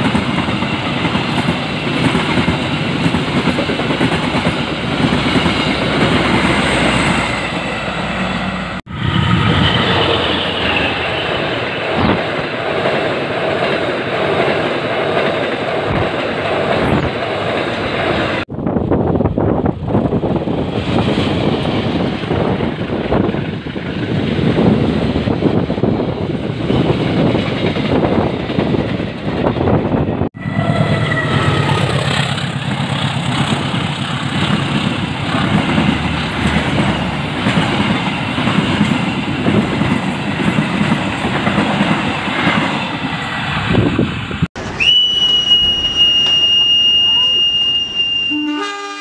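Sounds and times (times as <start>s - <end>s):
train wheels clattering over rails: 31.7s - 43.6s
high-pitched steady tone: 44.6s - 48.7s.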